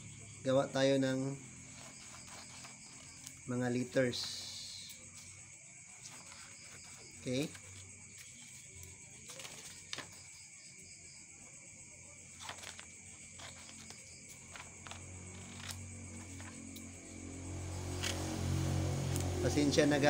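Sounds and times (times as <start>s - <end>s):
road traffic rumble: 0.0s - 5.4s, 13.5s - 20.0s
scissors cutting paper: 1.6s - 3.4s, 12.4s - 17.1s.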